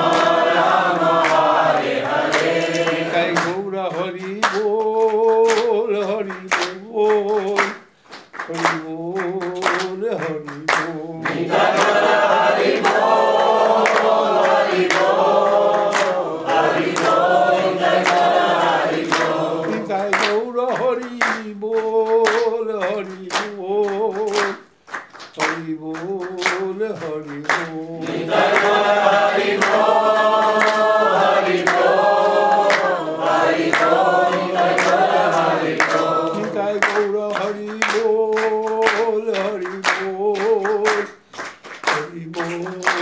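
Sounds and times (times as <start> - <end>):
call-and-response chanting: 0.0 - 7.8, 8.4 - 24.6, 25.4 - 41.2, 41.8 - 43.0
rhythmic hand clapping: 0.0 - 43.0.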